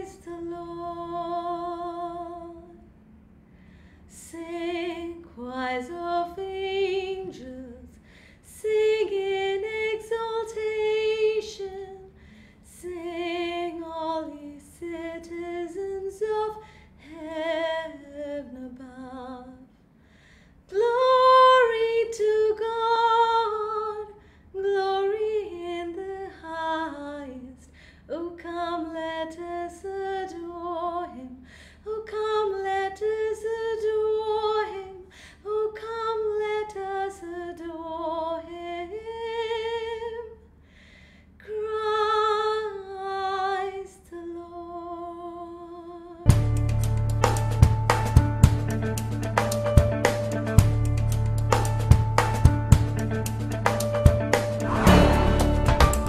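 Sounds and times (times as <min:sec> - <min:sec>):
woman singing a hymn unaccompanied: 0:00.0 - 0:02.8, 0:04.1 - 0:19.8, 0:20.7 - 0:40.4, 0:41.4 - 0:46.3.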